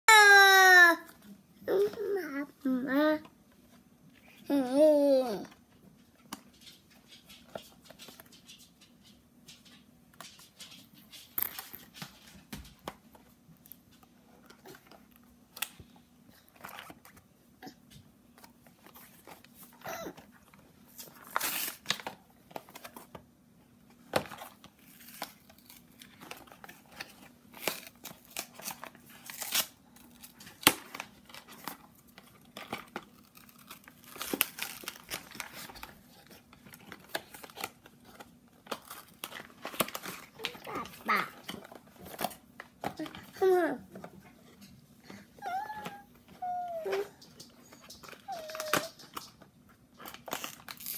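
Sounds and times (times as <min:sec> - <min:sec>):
cardboard and foil packaging tearing: 0:20.9 - 0:23.1, 0:24.2 - 0:42.4, 0:48.0 - 0:49.4, 0:50.0 - 0:50.9.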